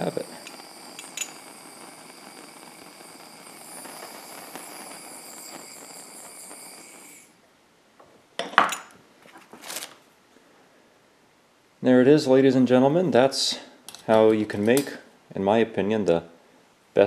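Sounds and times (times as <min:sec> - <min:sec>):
propane torch hissing: 0:00.0 - 0:07.5.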